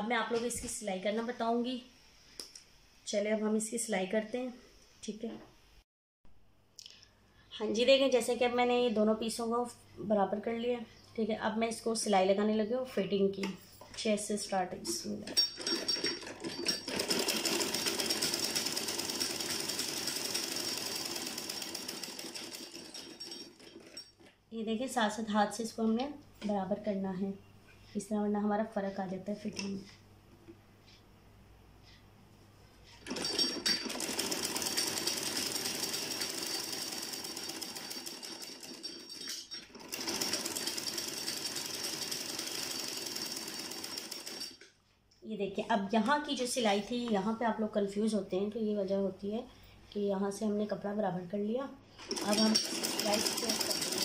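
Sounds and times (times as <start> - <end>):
sewing machine stitching: 15.4 - 24.3, 33.0 - 44.6, 52.0 - 54.0.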